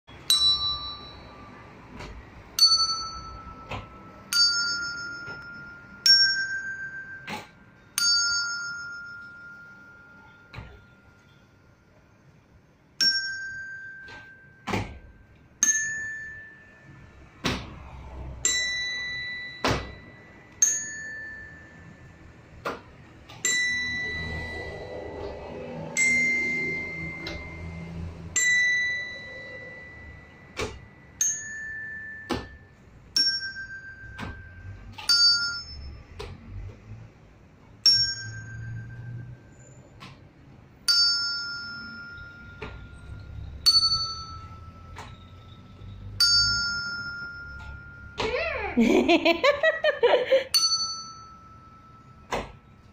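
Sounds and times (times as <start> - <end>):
tuned bells playing a scale: 0.1 - 11.8, 13.0 - 17.4, 18.4 - 22.6, 23.3 - 36.6, 37.8 - 39.9, 40.8 - 52.9.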